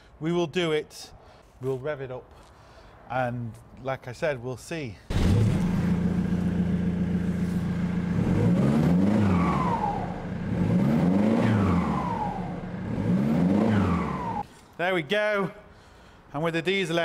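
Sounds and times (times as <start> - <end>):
diesel engine revving: 5.1 - 14.4
turbo whine: 5.2 - 14.4.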